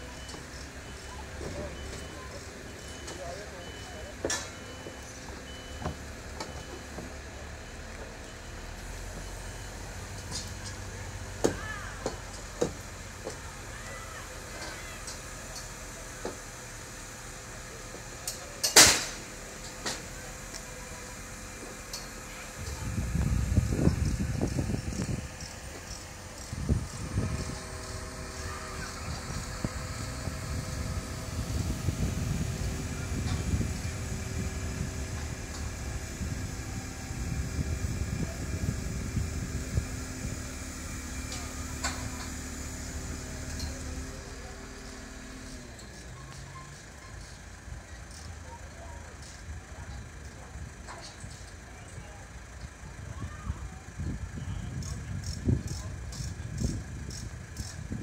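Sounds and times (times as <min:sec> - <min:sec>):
faint high beep: 0:00.0 - 0:07.0, 0:08.1 - 0:09.9
low engine rumble: 0:00.0 - 0:58.0
thin steady whine: 0:19.3 - 0:50.5.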